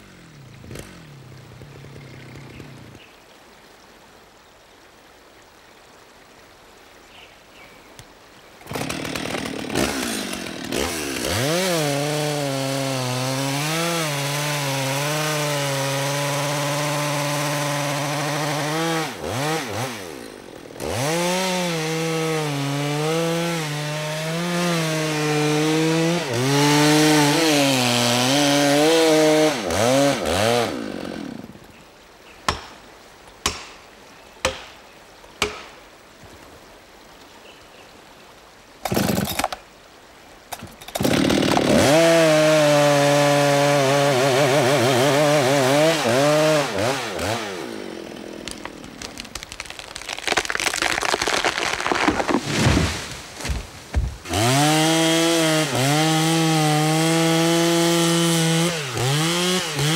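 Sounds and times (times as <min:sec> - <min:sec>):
chainsaw cutting through trunk: 0:00.0 - 0:02.8, 0:08.6 - 0:31.6, 0:38.8 - 0:39.6, 0:40.5 - 0:59.9.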